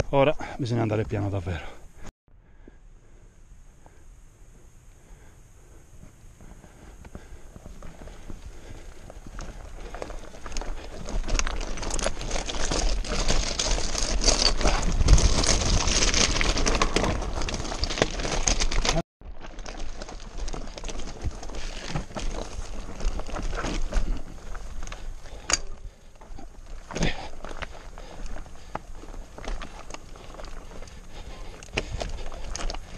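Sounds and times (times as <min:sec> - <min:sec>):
bike rattling: 0:05.6 - 0:32.9
tyres crunching over stones: 0:07.2 - 0:32.9.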